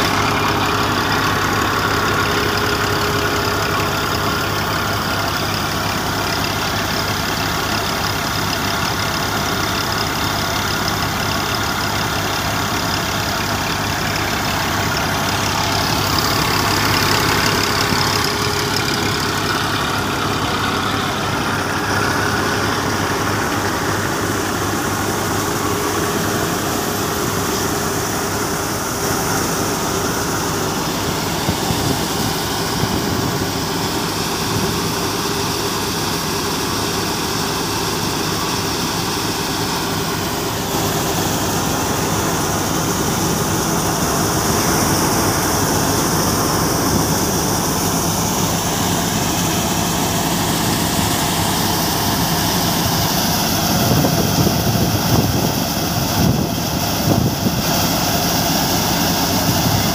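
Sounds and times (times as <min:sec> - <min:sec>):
thresher running: 0:00.0 - 0:59.9
tractor engine: 0:00.0 - 0:59.9.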